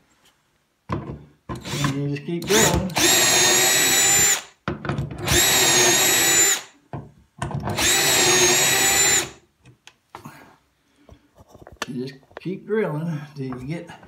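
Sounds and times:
power drill whining: 0:01.6 - 0:04.5, 0:05.2 - 0:06.7, 0:07.7 - 0:09.4.

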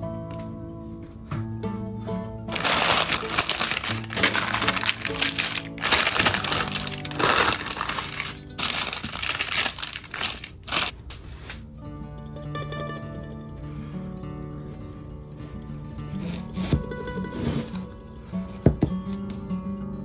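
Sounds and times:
background music: 0:00.0 - 0:10.9
baking paper crinkling: 0:02.5 - 0:10.9.

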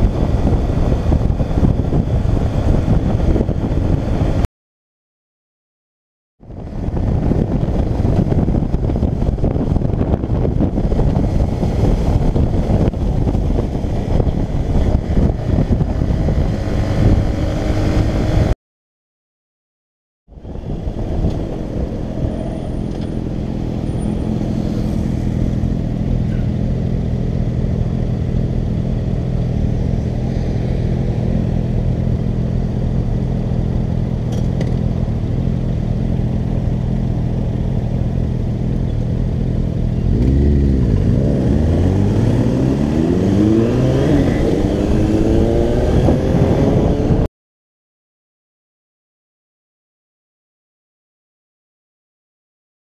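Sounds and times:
motorcycle engine idling and revving: 0:00.0 - 0:04.5, 0:06.4 - 0:18.6, 0:20.3 - 0:47.3
other motorcycle engines: 0:06.4 - 0:18.5, 0:20.3 - 0:47.3.

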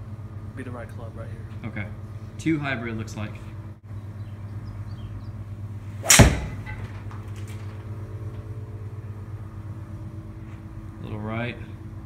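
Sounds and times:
golf ball struck with a crack: 0:06.0 - 0:07.2.

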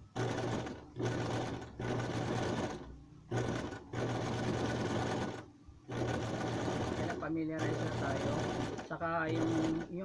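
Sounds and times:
sewing machine running: 0:00.1 - 0:10.0.

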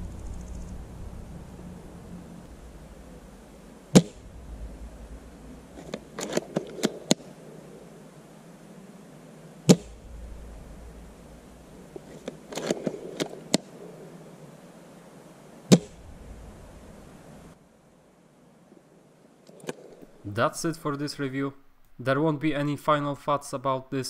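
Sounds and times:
airsoft rifle shot crack: 0:03.9 - 0:04.4, 0:09.7 - 0:10.1, 0:15.7 - 0:16.0.

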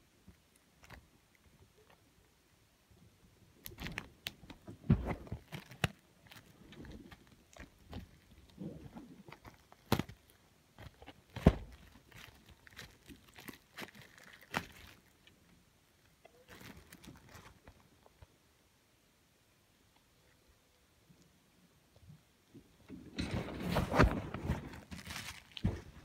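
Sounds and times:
handling package clicks and crinkling: 0:03.6 - 0:15.4, 0:16.3 - 0:18.3, 0:23.7 - 0:26.0.

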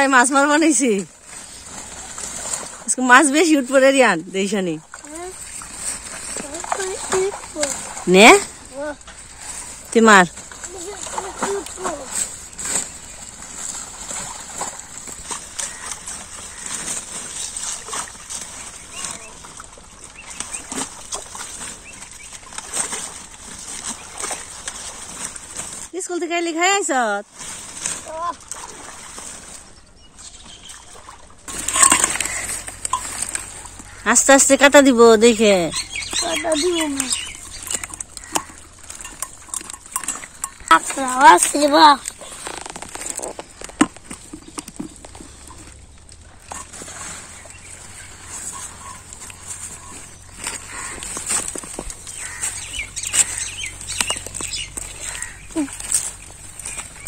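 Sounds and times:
leaves rustling: 0:00.0 - 0:57.0
water splashing and sloshing: 0:00.0 - 0:57.0.

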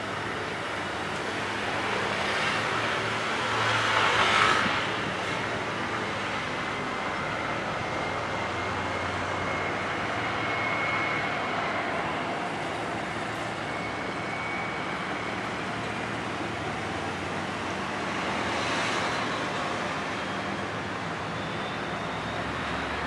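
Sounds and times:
ferry engines running: 0:00.0 - 0:23.0
faint high whine: 0:06.1 - 0:23.0.

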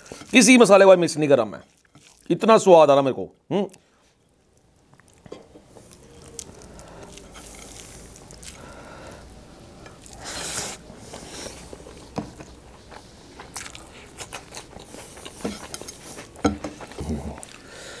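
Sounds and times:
chewing with wet mouth clicks: 0:04.5 - 0:08.8, 0:11.2 - 0:17.7.

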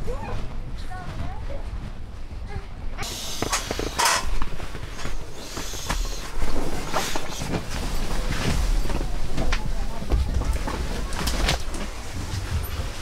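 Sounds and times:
sleeping mat rustling: 0:03.0 - 0:13.0.

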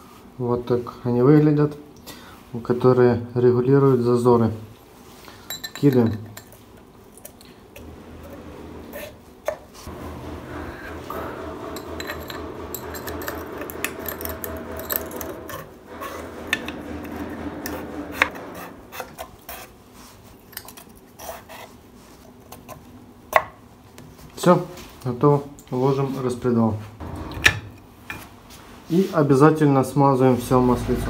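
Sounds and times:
metal cups clinking and rubbing: 0:05.3 - 0:06.7, 0:10.8 - 0:19.6
steady low hum: 0:07.7 - 0:20.0.

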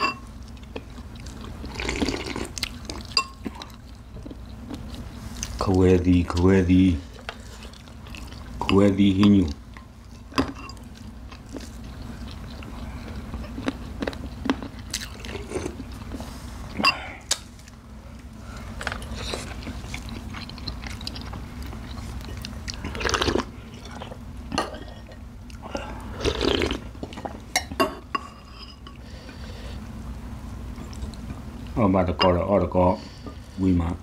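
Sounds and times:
chewing crunchy vegetables: 0:00.4 - 0:27.7.

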